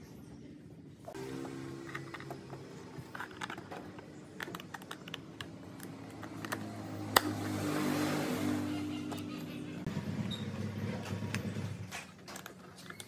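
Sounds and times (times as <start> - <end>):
small hard parts clicking: 1.8 - 7.3.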